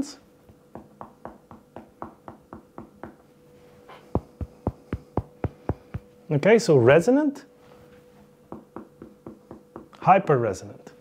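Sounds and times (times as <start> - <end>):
fingers tapping on body: 0.4 - 3.2, 4.1 - 6.1.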